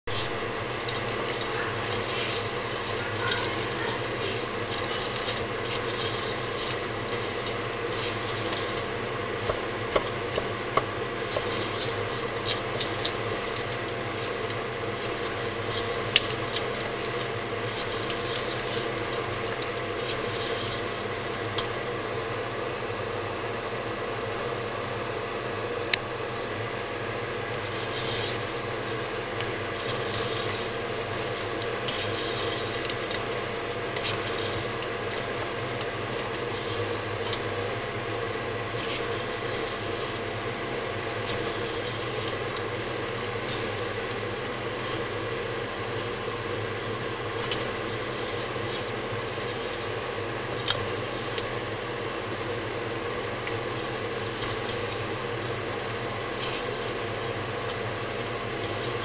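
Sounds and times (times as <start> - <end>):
steady hum: 0.0 - 59.0
nuts rattling in a metal pan: 0.1 - 9.4.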